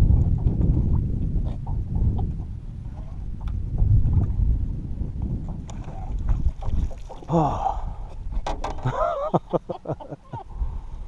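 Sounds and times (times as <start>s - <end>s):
wind rumbling on microphone: 0.0s - 11.0s
knocks and clatter against boat: 8.1s - 9.2s.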